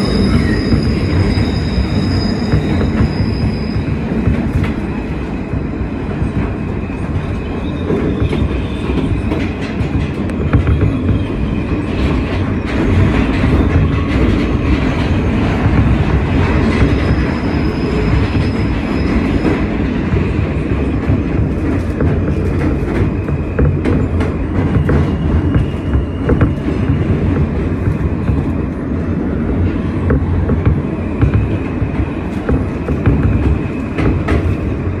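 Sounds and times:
faint high wheel squeal: 0.0 - 4.0, 16.8 - 19.7
subway train rumble in tunnel: 0.0 - 35.0.

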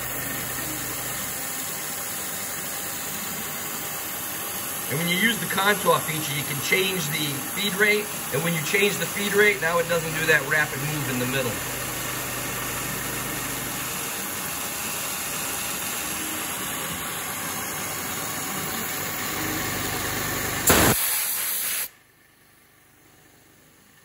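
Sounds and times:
milling spindle and cutting noise: 4.8 - 20.7
air blast nozzle hissing: 20.6 - 22.0.

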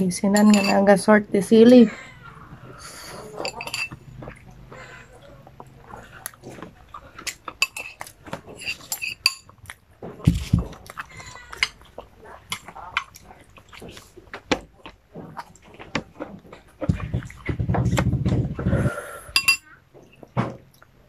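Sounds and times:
spoon clinking on ceramic bowl: 0.3 - 0.8, 3.4 - 4.0, 7.6 - 8.0, 8.6 - 9.5, 19.4 - 19.7
chewing: 1.9 - 18.8.

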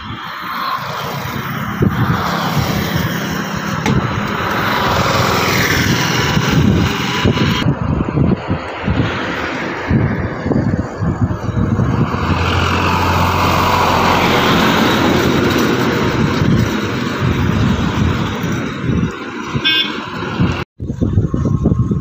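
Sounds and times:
tyre and road noise: 0.0 - 22.0
wind buffeting microphone: 0.0 - 22.0
diesel truck engine droning: 9.9 - 20.6
vehicle horn toot: 19.6 - 20.1.

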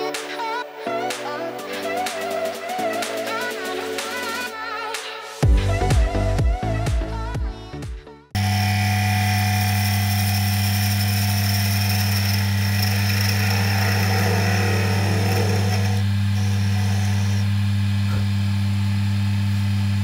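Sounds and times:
background music: 0.0 - 8.4
chisel cutting wood: 8.4 - 18.2
wood lathe humming: 8.4 - 18.2.

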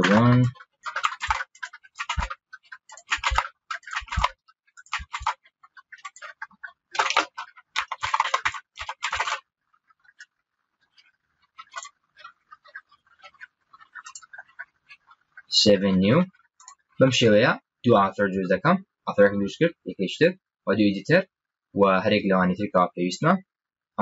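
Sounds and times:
computer keyboard typing: 0.0 - 16.9.

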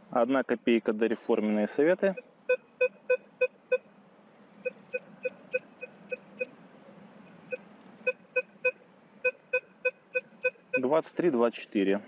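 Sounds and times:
metal detector beeps: 4.6 - 6.5, 7.5 - 10.9.

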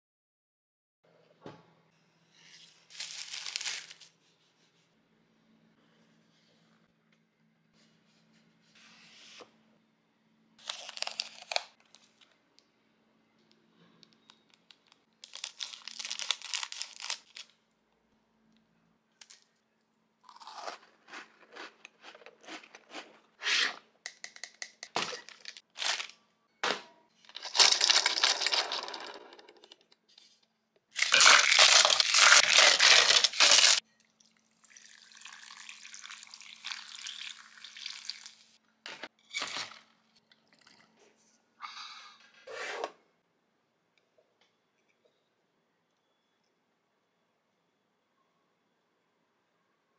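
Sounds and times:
plastic wrapper crinkling: 2.9 - 4.1, 10.6 - 12.2, 14.6 - 17.6, 25.2 - 26.2, 31.0 - 33.8
loud crinkling and rustling: 31.0 - 33.8.

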